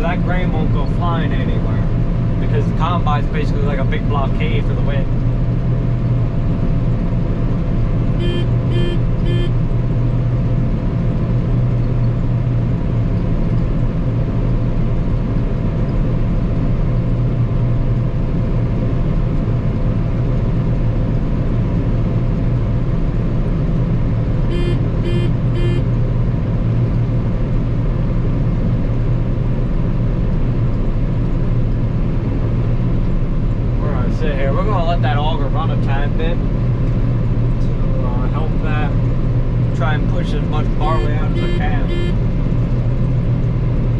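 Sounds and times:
combine harvester engine drone: 0:00.0 - 0:43.9
short electronic beeps: 0:08.2 - 0:09.6, 0:24.5 - 0:25.8, 0:40.8 - 0:42.2.

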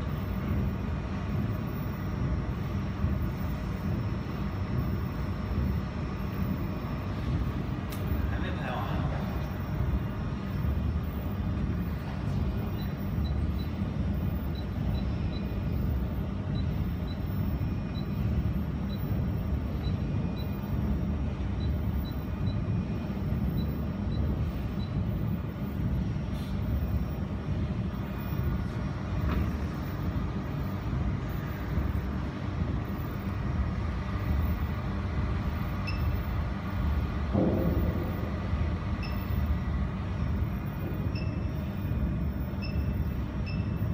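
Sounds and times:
low machinery rumble: 0:00.0 - 0:43.9
short high beeps: 0:39.0 - 0:39.5, 0:42.6 - 0:43.8.

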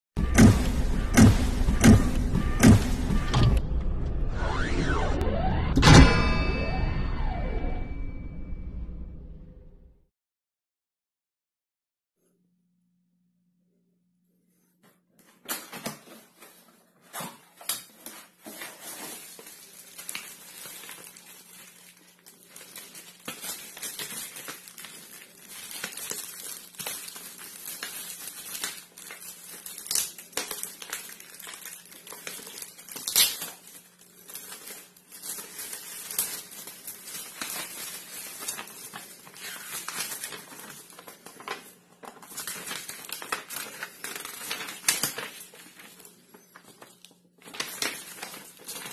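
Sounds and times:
paper sheet rustling: 0:15.2 - 0:48.9
plastic wrapping crinkling: 0:15.2 - 0:48.9.

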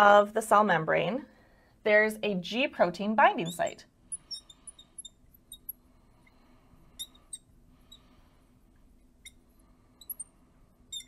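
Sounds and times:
marker squeaking on glass: 0:03.4 - 0:08.1, 0:09.2 - 0:11.0.

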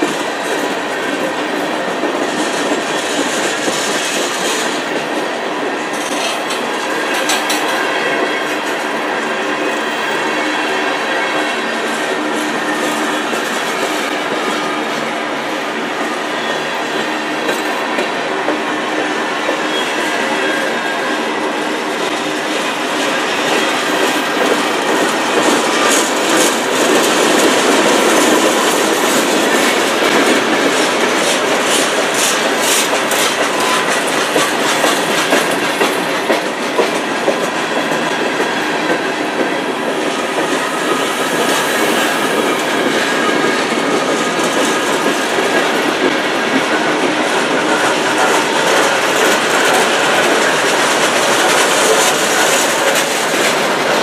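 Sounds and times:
train wheels clacking over rail joints: 0:00.0 - 0:54.0
wheel squeal: 0:19.6 - 0:21.0.

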